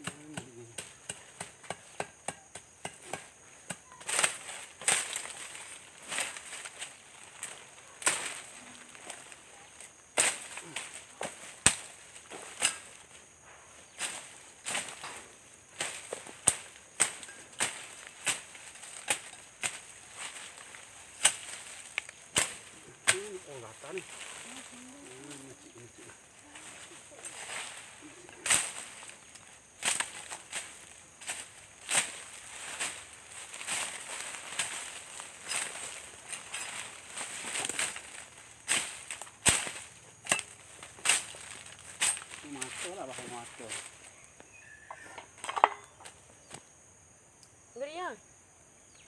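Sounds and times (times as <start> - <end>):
machete chopping undergrowth: 0.0 - 8.5, 10.1 - 24.4, 28.4 - 42.8.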